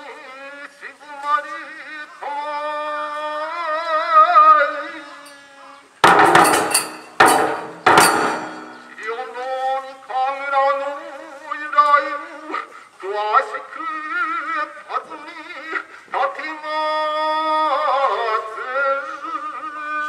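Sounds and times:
drum and cymbal crashes: 0:06.0 - 0:09.0
man chanting with vibrato: 0:08.6 - 0:20.0.

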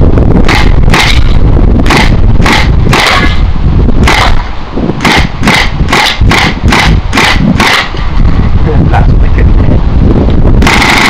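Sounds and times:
airsoft rifle shots: 0:00.4 - 0:03.4, 0:04.0 - 0:08.1, 0:10.6 - 0:11.0.

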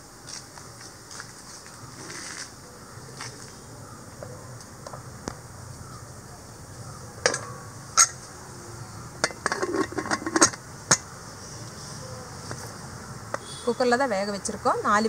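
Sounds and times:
metal lid clanking: 0:07.2 - 0:08.2, 0:09.2 - 0:11.0
rattling clicks of lid turning: 0:09.2 - 0:11.1.

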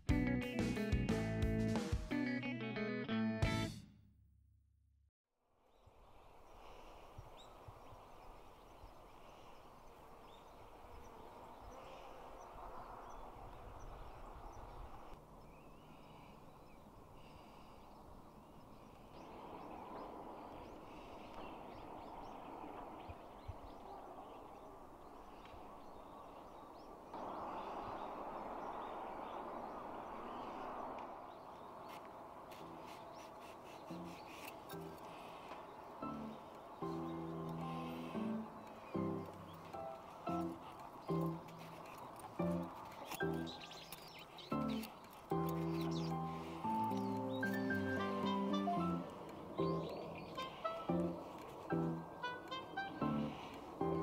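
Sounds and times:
steady rushing haze: 0:05.8 - 0:45.3.

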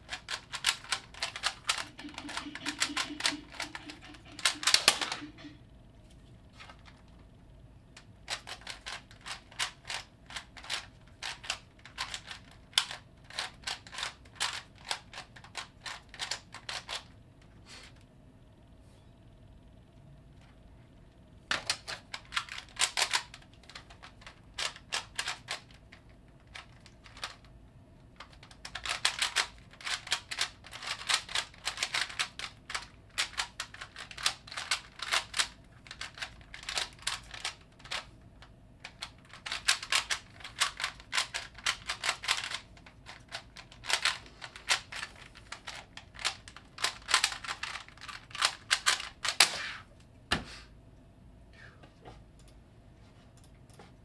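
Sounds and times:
puzzle cube clicks rattling: 0:00.0 - 0:05.5, 0:08.2 - 0:17.1, 0:21.5 - 0:27.5, 0:28.2 - 0:38.1, 0:38.8 - 0:49.4.

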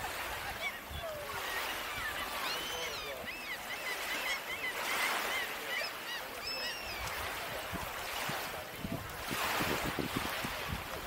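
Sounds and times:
small waves on shore: 0:00.0 - 0:11.0
flock of birds calling: 0:00.1 - 0:08.5.

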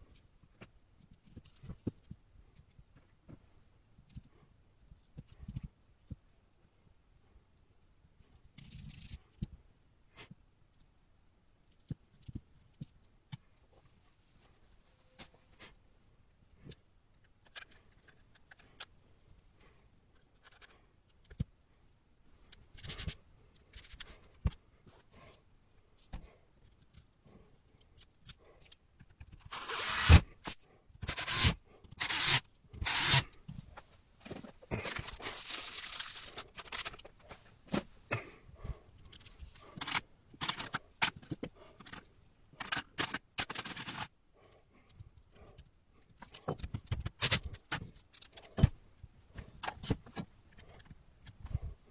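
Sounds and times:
cordless drill driving screws: 0:29.4 - 0:33.3
parts and tools clattering: 0:34.2 - 0:37.9, 0:39.0 - 0:44.1.

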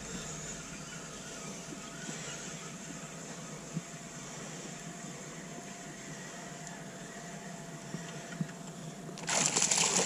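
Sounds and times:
fish splashing at surface: 0:09.2 - 0:10.0
fishing reel whirring: 0:09.2 - 0:10.0.

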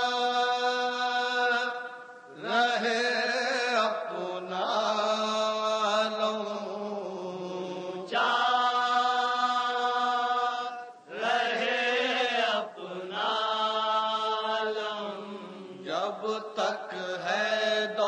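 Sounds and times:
man chanting a lament: 0:00.0 - 0:11.0.

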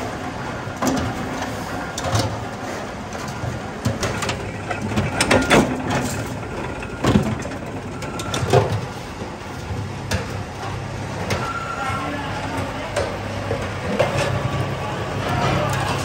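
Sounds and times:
low machine hum: 0:00.0 - 0:16.0.

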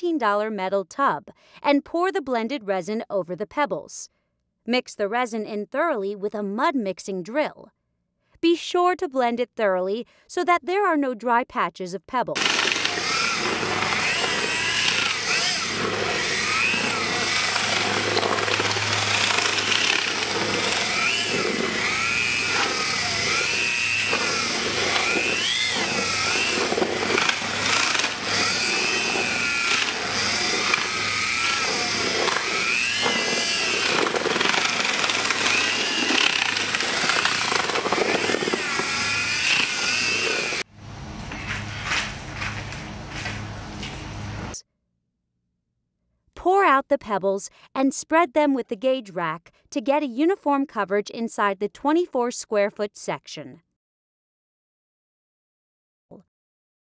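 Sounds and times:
mixing drill motor whining: 0:12.4 - 0:40.7.

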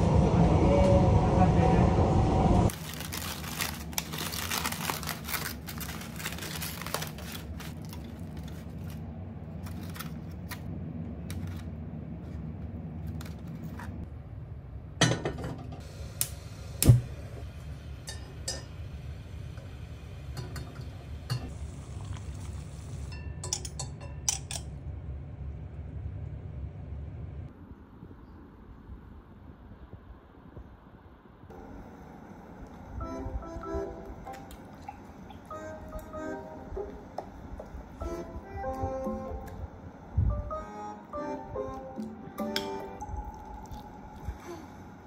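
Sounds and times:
aluminium foil crinkling: 0:02.7 - 0:10.7
steady low hum: 0:03.6 - 0:45.0.

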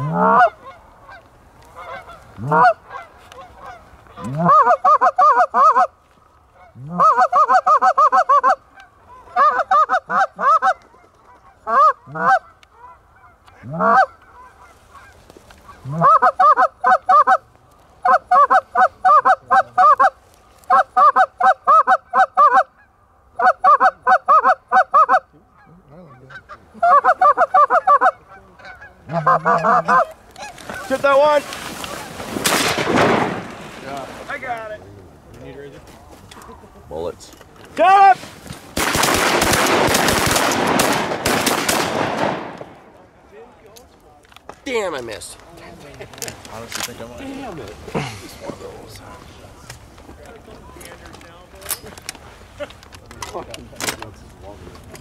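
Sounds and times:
goose call honks: 0:00.0 - 0:01.2, 0:01.8 - 0:05.9, 0:06.6 - 0:17.4, 0:18.0 - 0:31.2
goose call clucks: 0:00.0 - 0:05.9, 0:06.6 - 0:32.2.

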